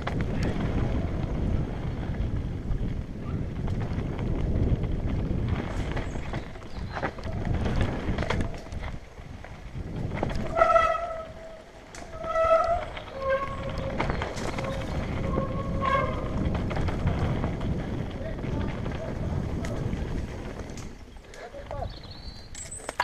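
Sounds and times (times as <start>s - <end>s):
bike knocking and rattling: 0.0s - 23.0s
bike tyres rumbling over dirt: 0.0s - 23.0s
brake squeal: 10.4s - 16.5s.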